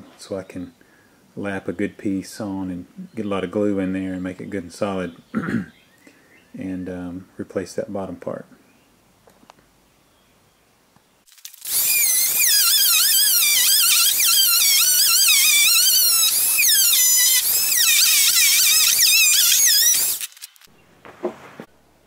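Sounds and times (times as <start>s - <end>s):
multi-tool buzzing through wood: 11.6s - 20.7s.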